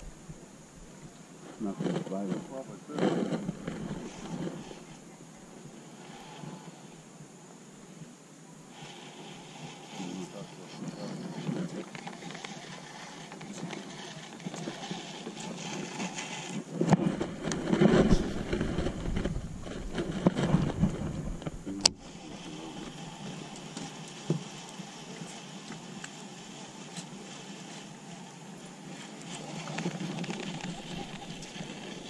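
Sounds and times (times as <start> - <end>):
wind buffeting microphone: 0.0 - 6.4, 9.5 - 25.4
steady outdoor hiss: 0.0 - 32.0.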